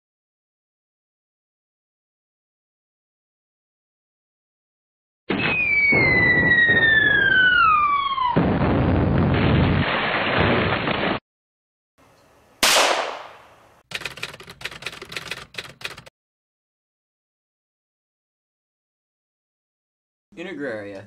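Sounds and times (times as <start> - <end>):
falling whistle: 5.3 - 8.4
explosion: 5.3 - 11.2
sharp blast: 12.6 - 13.5
rapid gunfire: 12.6 - 14.4.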